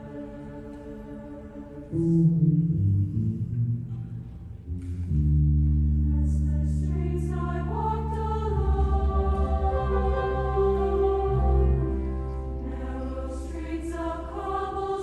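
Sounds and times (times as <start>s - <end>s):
choir singing: 0.0s - 2.4s, 6.0s - 15.0s.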